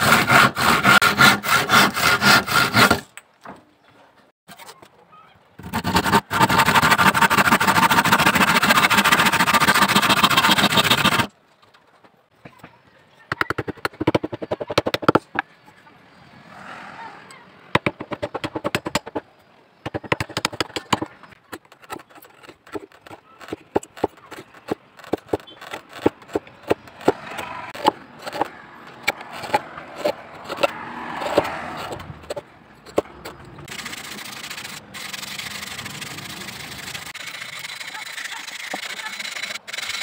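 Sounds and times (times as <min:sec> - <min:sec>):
sandpaper rubbing wood: 0:00.0 - 0:03.0, 0:05.6 - 0:11.3, 0:33.7 - 0:40.0
chisel chipping wood: 0:00.0 - 0:03.1, 0:05.6 - 0:11.3, 0:13.3 - 0:15.4, 0:17.8 - 0:19.2, 0:19.8 - 0:40.0.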